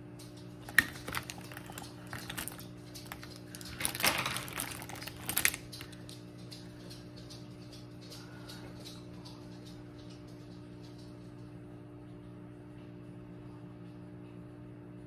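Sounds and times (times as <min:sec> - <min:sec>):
faint steady hum: 0:00.0 - 0:15.0
rattling and rustling: 0:00.6 - 0:07.4.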